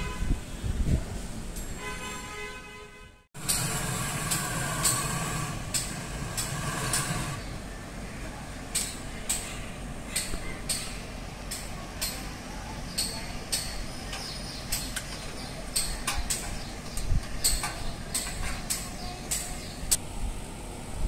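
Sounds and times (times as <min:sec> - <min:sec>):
hand tools clicking on metal: 0:08.8 - 0:09.5, 0:10.2 - 0:12.3, 0:13.0 - 0:19.6.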